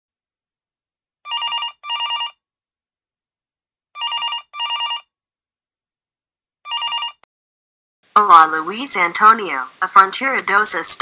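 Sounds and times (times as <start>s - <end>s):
telephone warbling ring: 1.3s - 2.4s, 4.0s - 5.1s, 6.7s - 7.2s.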